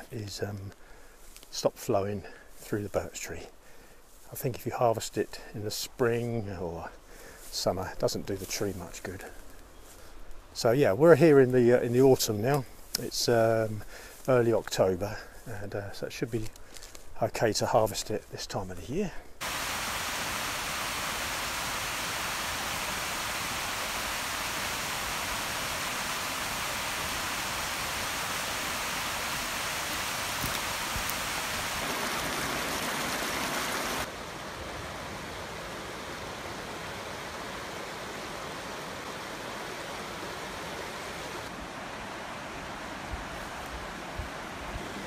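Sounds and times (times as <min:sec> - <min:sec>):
rocky river rushing: 0:19.4 - 0:45.0.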